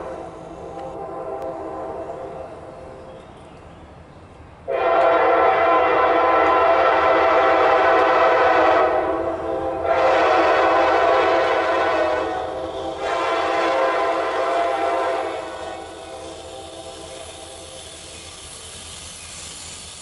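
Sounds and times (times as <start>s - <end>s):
locomotive horn blasts: 0.7s - 2.5s, 4.7s - 17.2s.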